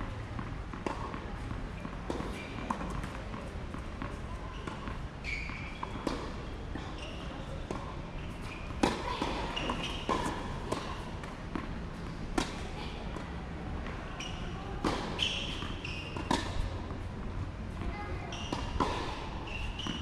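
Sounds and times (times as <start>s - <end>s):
tennis ball bouncing: 0.2s - 5.0s, 5.8s - 20.0s
racket striking tennis ball: 8.8s - 11.7s, 12.3s - 13.2s, 14.8s - 16.9s.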